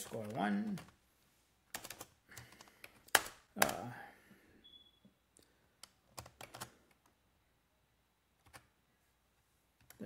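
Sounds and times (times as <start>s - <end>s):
computer keyboard keystrokes: 1.7s - 3.8s, 5.8s - 7.1s.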